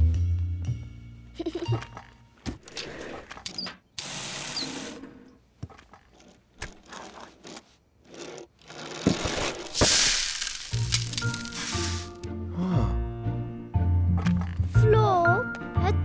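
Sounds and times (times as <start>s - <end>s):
toy car whirring mechanism: 5.8s - 12.1s.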